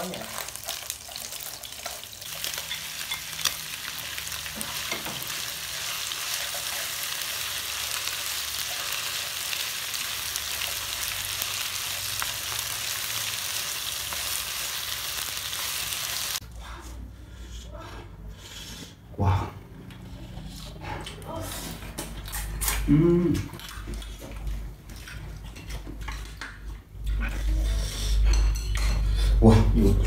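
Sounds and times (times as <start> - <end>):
meat sizzling in oil: 0.0 - 16.4.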